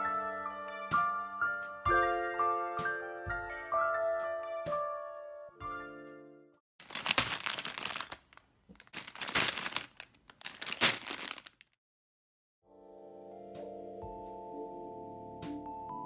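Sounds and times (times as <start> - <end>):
plastic bricks spilling: 6.8 - 11.7
plastic bag crinkling: 6.8 - 11.8.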